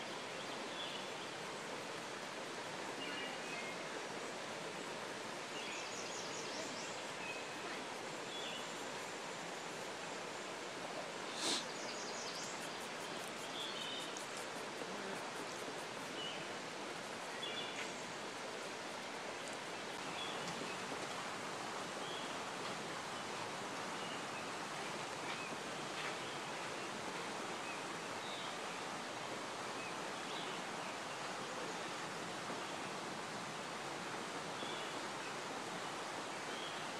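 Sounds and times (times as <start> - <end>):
creek water rushing: 0.0 - 36.9.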